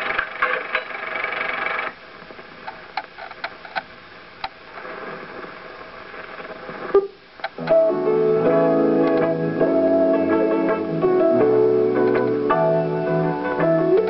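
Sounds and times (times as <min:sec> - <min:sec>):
film projector running: 0:00.0 - 0:02.0
low hiss: 0:00.0 - 0:14.0
sharp clicks and pops: 0:02.4 - 0:05.5, 0:06.1 - 0:07.8.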